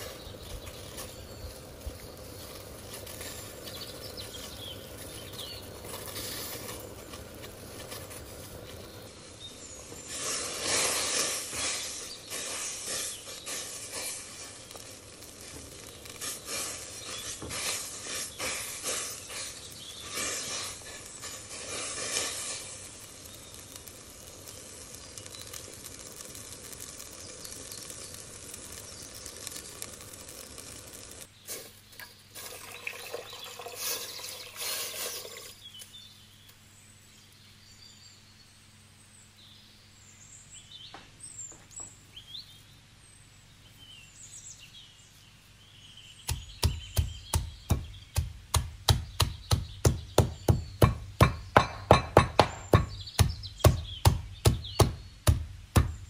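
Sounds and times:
knife chopping on wooden board: 46.3 - 56.0.

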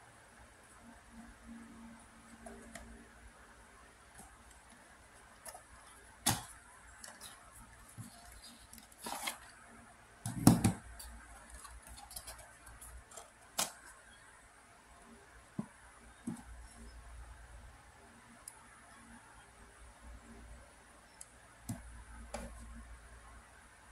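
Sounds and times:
cardboard rustling and clicking: 4.2 - 9.6.

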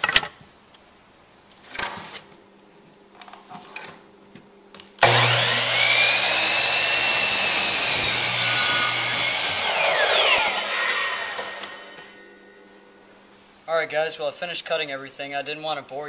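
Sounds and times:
miter saw cutting wood: 5.0 - 12.4.

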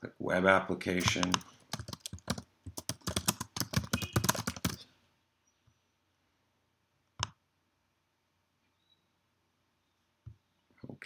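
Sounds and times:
computer keyboard typing: 1.0 - 4.8.

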